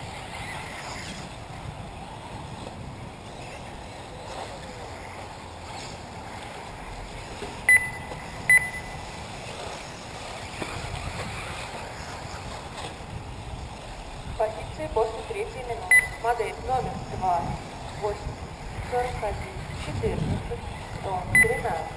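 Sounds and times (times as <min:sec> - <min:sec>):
electric rc cars running: 0:00.0 - 0:21.9
high-pitched beeps: 0:07.7 - 0:09.0, 0:15.9 - 0:16.3, 0:21.3 - 0:21.8.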